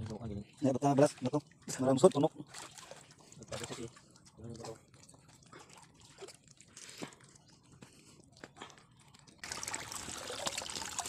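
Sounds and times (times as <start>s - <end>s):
clicks and crunches in shallow water: 2.4s - 11.0s.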